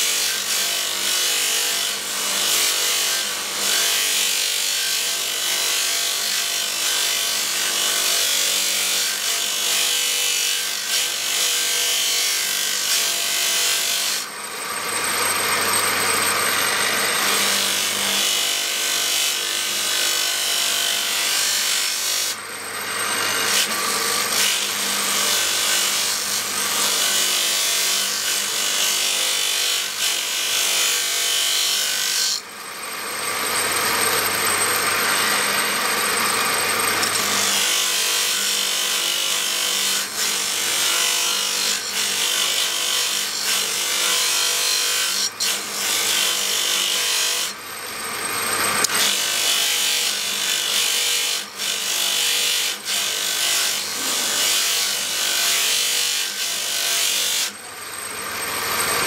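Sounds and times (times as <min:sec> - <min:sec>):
knife grinding on abrasive wheel: 0:14.9 - 0:32.6, 0:33.2 - 0:57.6.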